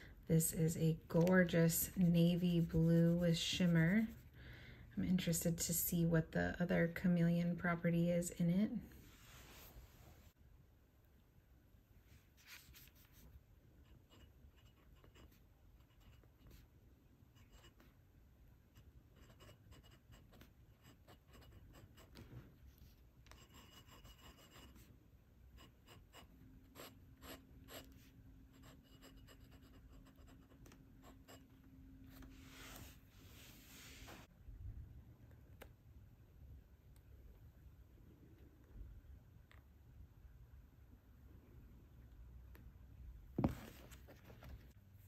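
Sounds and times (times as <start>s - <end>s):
pen nib scratching on paper: 0.7s - 4.2s, 13.8s - 16.6s, 18.7s - 22.3s, 23.2s - 24.9s, 25.6s - 31.6s.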